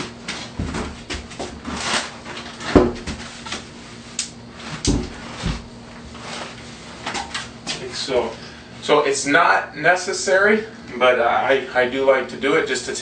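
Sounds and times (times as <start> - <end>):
shower base knocking and thumping: 2.6 - 3.3, 4.8 - 5.7.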